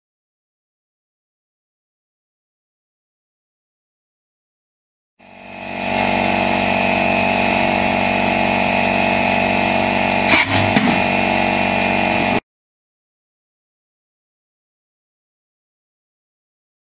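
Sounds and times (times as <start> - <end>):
motor droning: 5.2 - 12.4
air cannon blast: 10.3 - 11.2.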